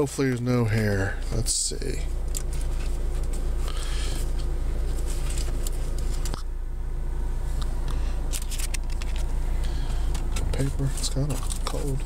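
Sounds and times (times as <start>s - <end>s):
car idling hum: 0.0s - 12.0s
rustling and handling noises: 1.9s - 6.5s, 7.4s - 12.0s.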